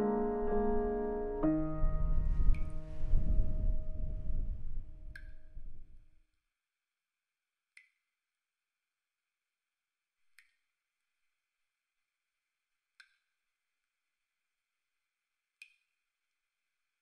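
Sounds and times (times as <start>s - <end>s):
water dripping into bathtub: 12.9s - 13.4s, 15.5s - 16.0s.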